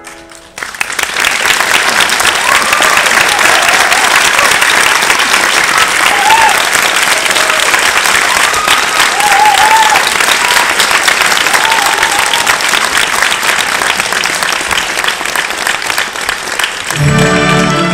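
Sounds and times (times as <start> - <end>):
audience applauding: 0.0 - 17.9
short cheers: 2.4 - 4.7, 5.8 - 10.8, 11.4 - 12.7.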